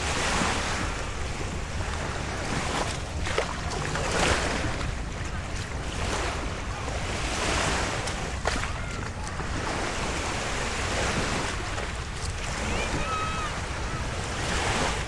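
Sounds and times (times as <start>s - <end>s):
waves lapping on sandy shore: 0.0s - 15.0s
wind rumbling on microphone: 0.0s - 15.0s.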